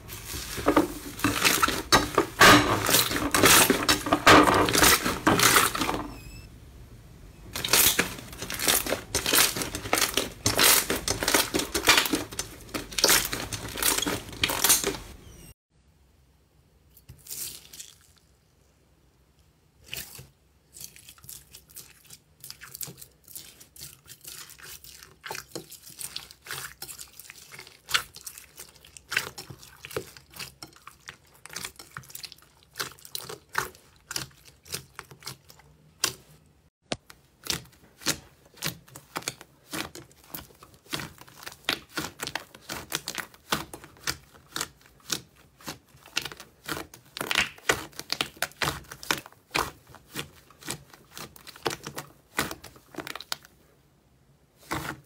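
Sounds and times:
slime squishing and popping: 0:07.6 - 0:15.2, 0:36.9 - 0:53.4.

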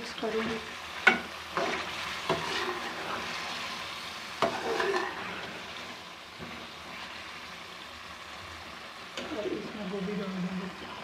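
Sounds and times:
chicken sizzling in a pan: 0:00.0 - 0:11.0
metal spoon stirring and scraping: 0:00.4 - 0:03.8, 0:04.4 - 0:05.6.

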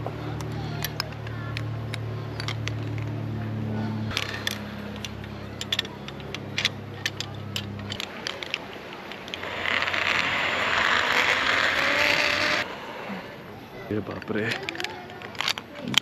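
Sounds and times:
carabiners clinking on steel cable: 0:00.0 - 0:03.3, 0:04.0 - 0:12.7, 0:14.0 - 0:16.0
low steady hum: 0:00.0 - 0:16.0
zipline trolley rushing along cable: 0:00.0 - 0:16.0.

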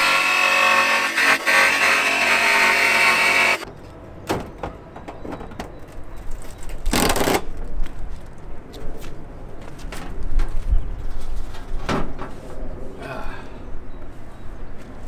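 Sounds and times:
jigsaw cutting sheet metal: 0:00.0 - 0:03.6.

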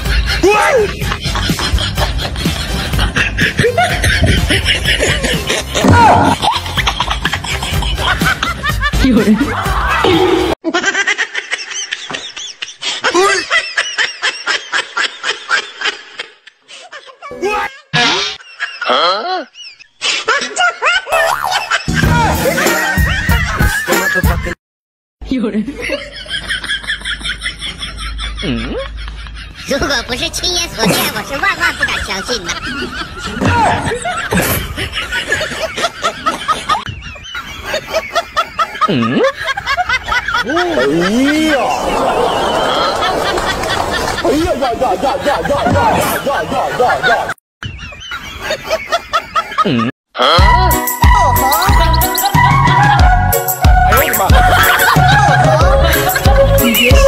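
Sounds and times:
high-pitched laughter: 0:00.0 - 0:24.5, 0:25.8 - 0:29.7, 0:30.8 - 0:44.5, 0:54.1 - 0:57.0
music: 0:07.5 - 0:10.1, 0:21.9 - 0:24.6, 0:50.3 - 0:57.0.

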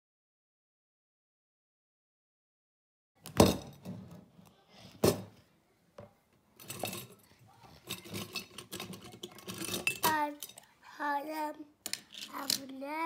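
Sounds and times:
toy cars clinking against glass jar: 0:06.6 - 0:10.7, 0:11.8 - 0:12.8.

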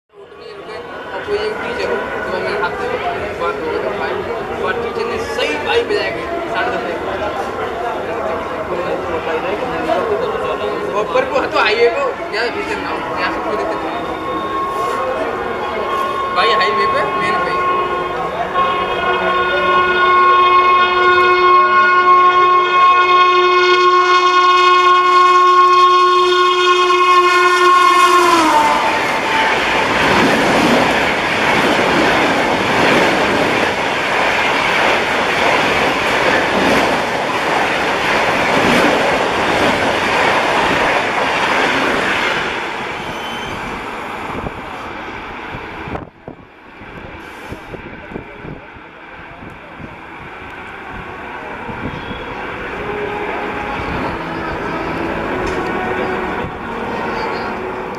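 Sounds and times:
rush of train coaches: 0:00.2 - 0:57.9
train horn blast: 0:13.3 - 0:30.2, 0:50.6 - 0:57.9.

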